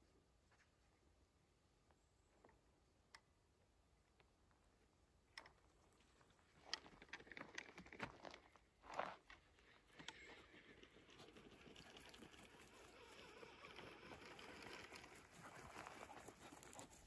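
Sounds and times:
footsteps crackling twigs: 10.6 - 17.0.

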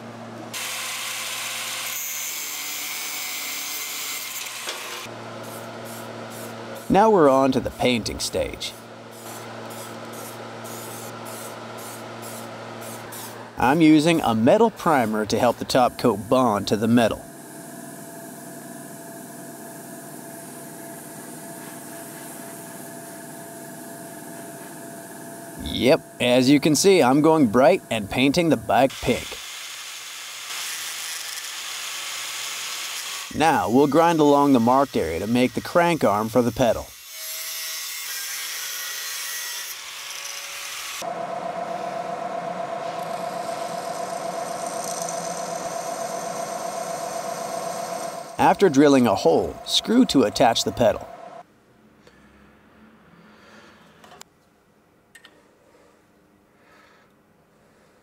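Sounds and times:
angle grinder cutting steel: 0.5 - 5.6, 28.8 - 51.2
drill press boring through steel: 40.1 - 51.2
airbrush hissing: 42.8 - 51.2.

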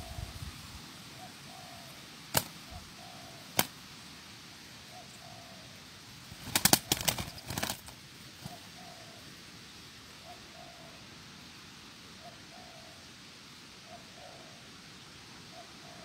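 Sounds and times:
doves cooing: 1.0 - 3.8, 4.8 - 9.4, 10.2 - 11.1, 12.1 - 16.0
sharp wing claps: 2.3 - 2.6, 3.5 - 3.8, 6.4 - 8.0
wing flapping: 2.3 - 2.7, 3.5 - 3.8, 6.2 - 8.7.

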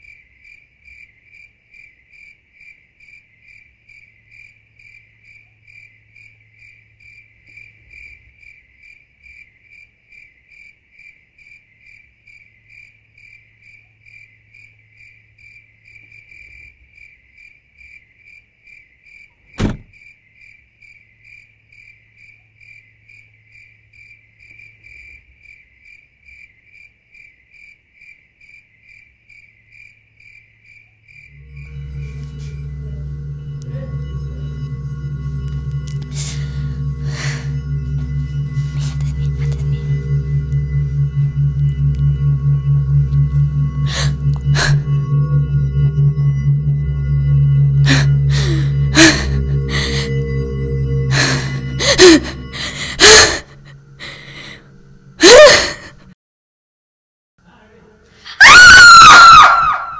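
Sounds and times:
faint low hum: 31.4 - 56.0.

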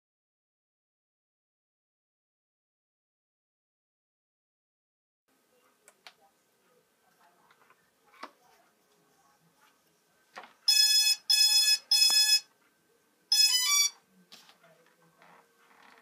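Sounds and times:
long electronic beeps: 10.7 - 12.5, 13.3 - 14.0.

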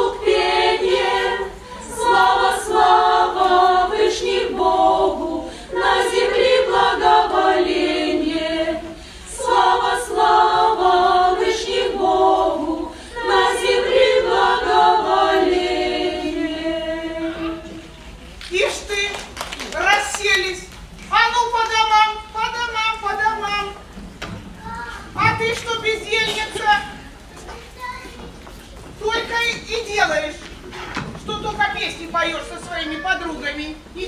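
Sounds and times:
choir singing unaccompanied: 0.0 - 18.0.

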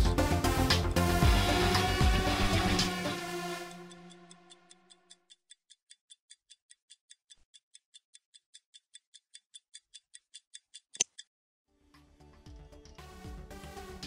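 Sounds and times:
stopwatch ticking: 1.3 - 11.3
stopwatch click: 3.9 - 11.3.

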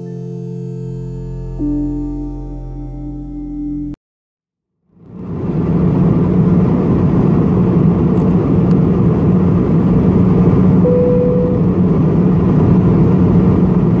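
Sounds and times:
airliner cabin rumble: 5.1 - 14.0
short steady tone: 10.8 - 11.8.

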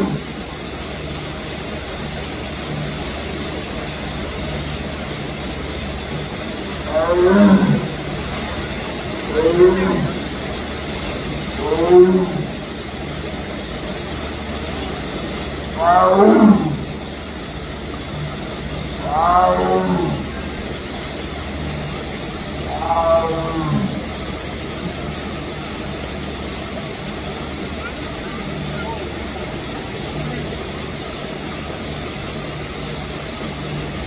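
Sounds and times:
tiger roaring: 0.0 - 0.8, 6.6 - 13.1, 15.0 - 17.2, 18.0 - 21.3, 21.9 - 25.3.

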